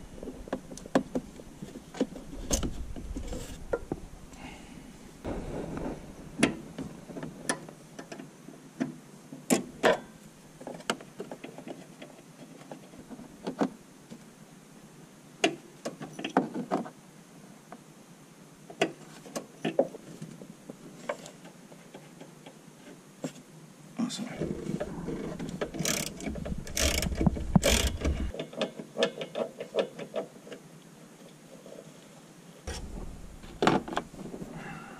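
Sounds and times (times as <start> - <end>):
hand tools clicking and knocking: 24.4 - 30.3.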